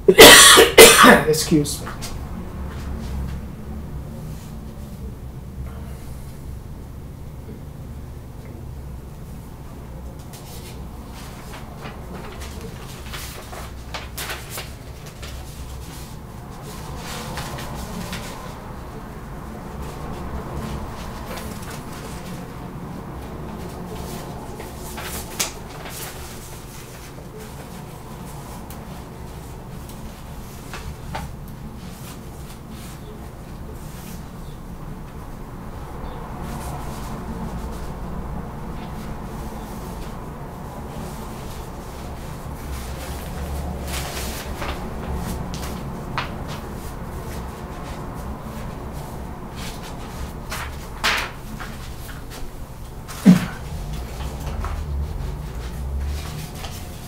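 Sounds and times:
steady low hum: 0.0s - 57.0s
paper rustling: 10.2s - 35.3s, 38.7s - 57.0s.

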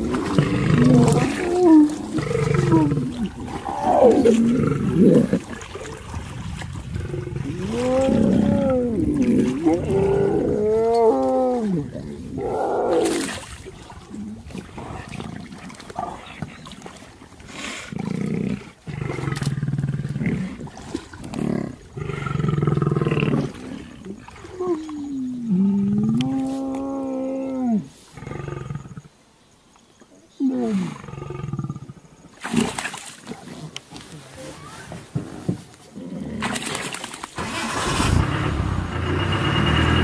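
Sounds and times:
lions growling and moaning: 0.0s - 6.0s, 6.9s - 13.3s, 13.9s - 29.2s, 33.4s - 36.7s.

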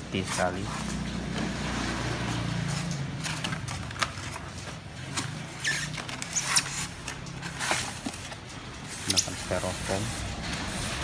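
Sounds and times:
packaging clicks and knocks: 3.2s - 8.6s
cardboard rustling scrape: 3.2s - 11.0s.

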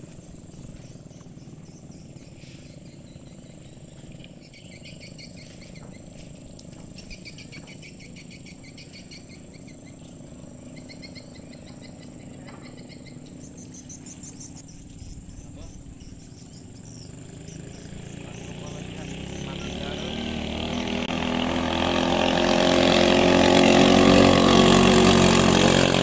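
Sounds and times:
low steady rumble: 0.0s - 19.9s
rapid repeated chirping: 0.0s - 20.9s
insect buzz: 0.0s - 26.0s.

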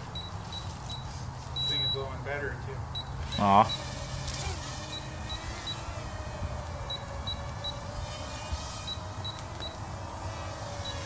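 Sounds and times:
high-pitched electronic beeps: 1.6s - 2.0s.

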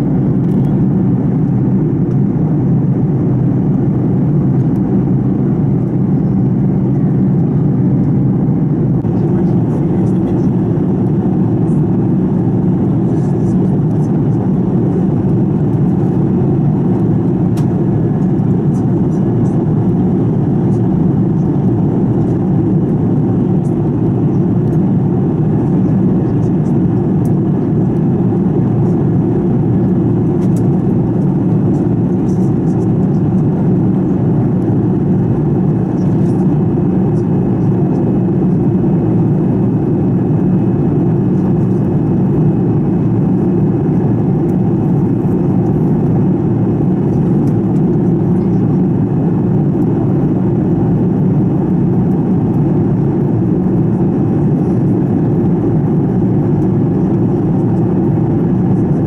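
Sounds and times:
airplane cabin engine drone: 0.0s - 59.0s
faint steady whine: 0.0s - 59.0s.

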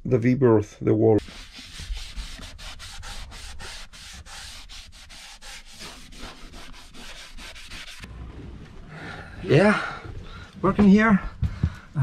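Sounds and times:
scrubbing wooden wall: 1.2s - 8.5s.

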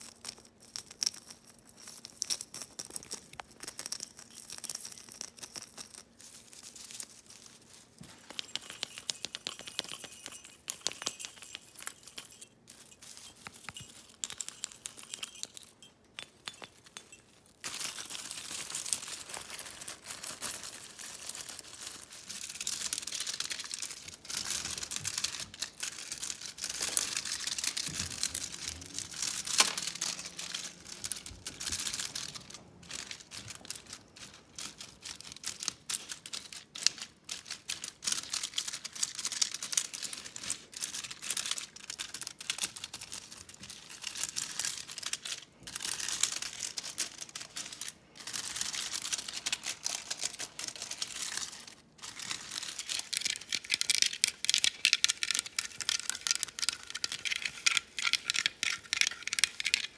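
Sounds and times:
crinkling: 0.0s - 59.9s
tapping on decorations: 8.0s - 18.5s, 24.4s - 34.8s.

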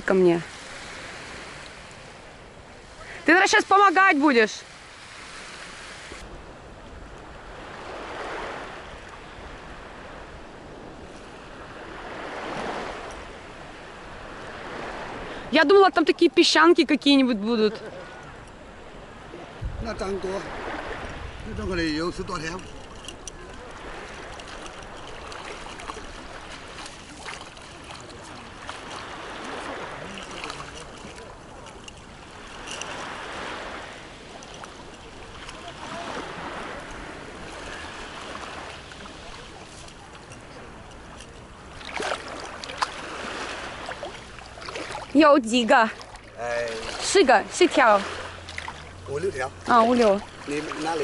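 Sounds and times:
sea water washing: 0.0s - 51.0s
low wind rumble: 18.1s - 26.8s
seawater sloshing around legs: 20.4s - 51.0s.

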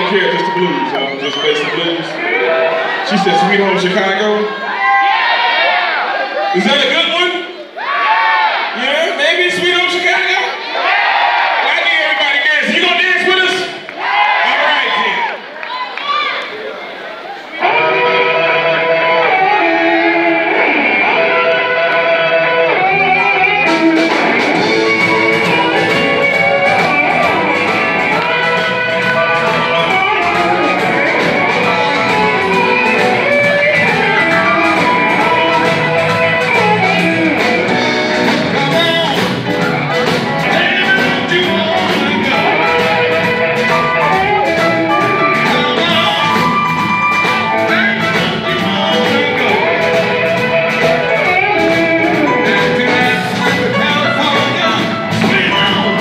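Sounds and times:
bass: 0.0s - 4.5s, 17.6s - 56.0s
keyboard: 16.8s - 56.0s
electric guitar: 17.5s - 56.0s
drums keeping a steady beat: 22.8s - 56.0s.

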